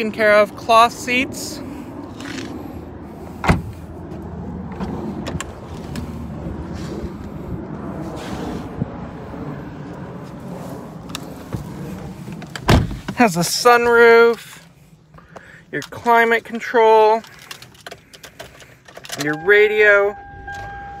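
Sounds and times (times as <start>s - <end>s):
car door shutting: 3.4s - 3.8s, 12.4s - 13.2s.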